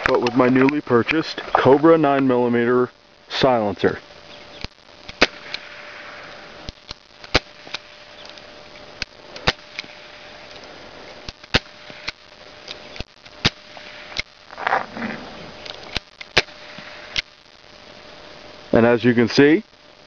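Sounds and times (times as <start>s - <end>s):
suppressed gunshots: 5.1s - 5.9s.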